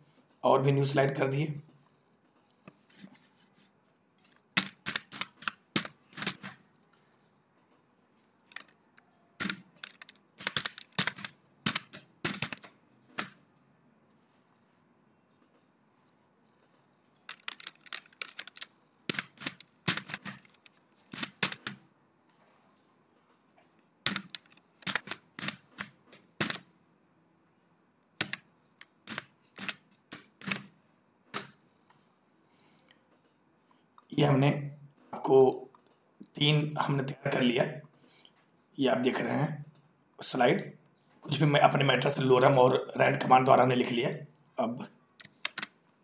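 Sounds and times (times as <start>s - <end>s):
computer keyboard typing: 4.6s - 7.8s, 9.4s - 13.4s, 15.4s - 15.7s, 16.6s - 21.8s, 24.1s - 26.6s, 28.2s - 28.5s, 29.1s - 30.7s, 31.3s - 31.6s, 45.2s - 45.7s.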